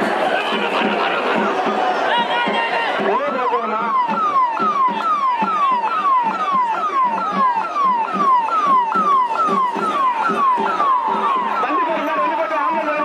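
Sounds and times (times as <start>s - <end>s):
large crowd din: 0.0s - 13.0s
electronic siren wailing: 3.0s - 13.0s.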